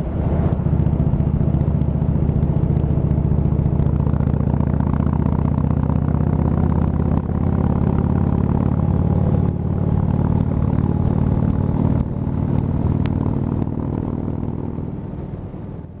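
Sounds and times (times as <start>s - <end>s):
motorcycle engine cruising: 0.0s - 16.0s.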